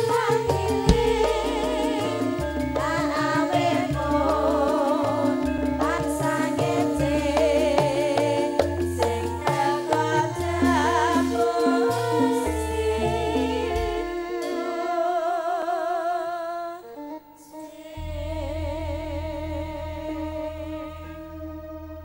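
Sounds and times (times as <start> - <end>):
band with keyboard and drums: 0.0 - 15.9, 16.8 - 22.0
woman singing with vibrato: 0.0 - 21.8
deep bass: 0.6 - 3.2, 18.0 - 22.0.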